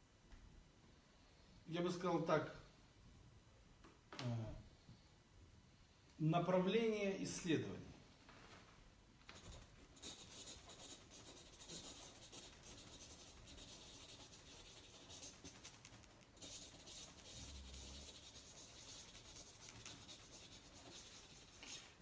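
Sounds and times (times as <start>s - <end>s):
marker scratching on paper: 9.3s - 22.0s.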